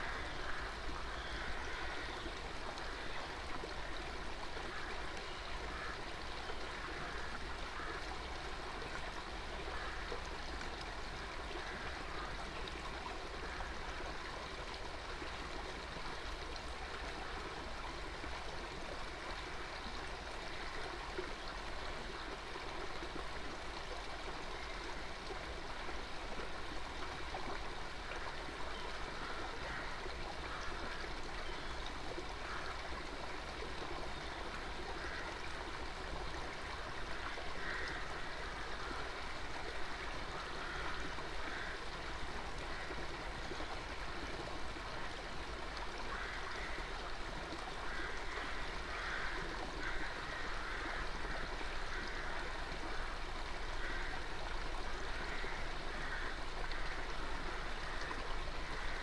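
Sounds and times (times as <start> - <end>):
stream babbling over rocks: 0.0 - 59.0.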